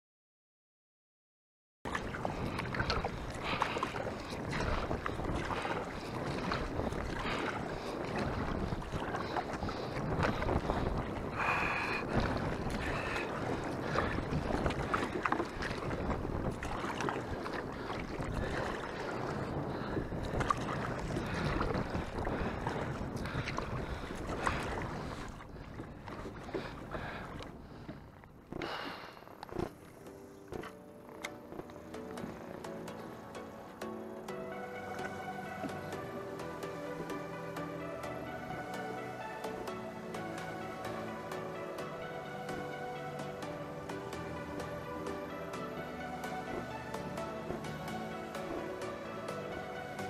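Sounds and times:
wind buffeting microphone: 1.9 - 28.9
water splashing from paddling: 1.9 - 50.0.

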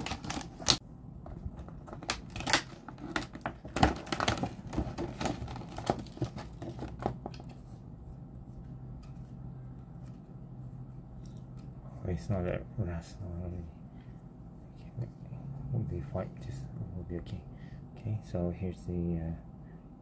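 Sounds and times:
plastic packaging crackling: 0.0 - 7.4.

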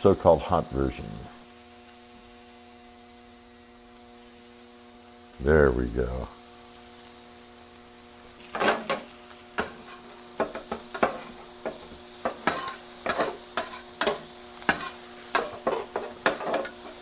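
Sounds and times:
food sizzling: 0.0 - 17.0
metal spatulas scraping on griddle: 8.4 - 17.0.

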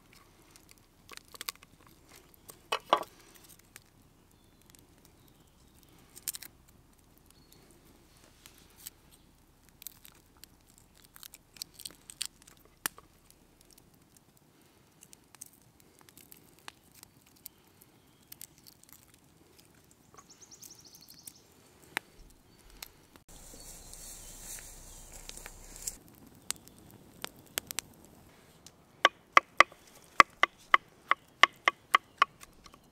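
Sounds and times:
garlic skins crackling and tearing: 0.0 - 7.7, 8.4 - 20.1, 21.0 - 28.2
loud steady hiss: 23.3 - 26.0.

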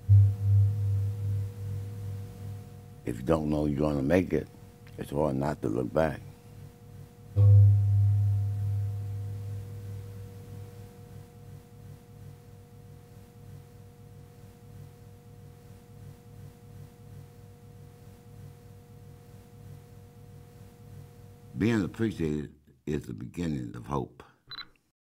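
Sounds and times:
struck low tone: 0.0 - 2.6, 7.4 - 10.6
ringing drone of pure tones: 0.0 - 2.7, 7.4 - 11.2
pulsing low hum: 0.0 - 3.0, 7.4 - 11.2.

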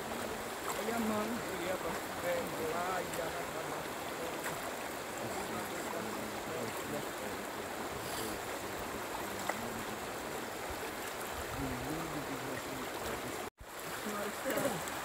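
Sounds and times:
river water flowing: 0.0 - 15.0
faint voice: 11.6 - 13.3.

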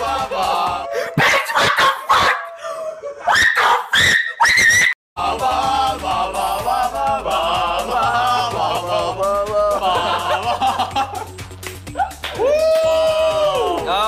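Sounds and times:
melodic background music: 0.0 - 1.2, 5.2 - 14.0
young men shouting and shrieking: 11.9 - 14.0.

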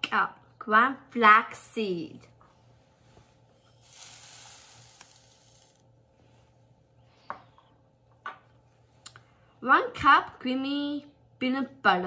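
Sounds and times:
seeds pouring into plastic tub: 3.8 - 5.8.

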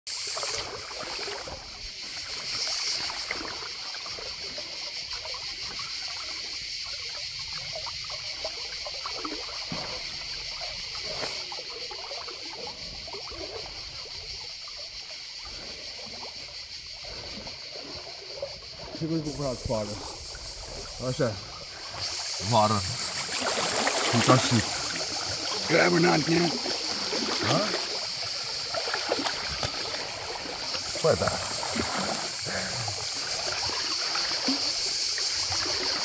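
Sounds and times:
river water flowing: 0.1 - 36.0
splashing from swimmer: 0.1 - 36.0.

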